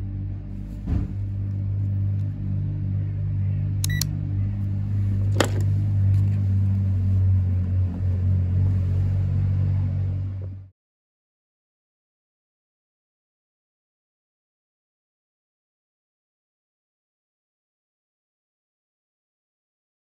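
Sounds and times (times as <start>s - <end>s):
low machine hum: 0.0s - 10.7s
high electronic beep: 3.8s - 4.1s
test probes clicking out of socket: 3.8s - 4.1s.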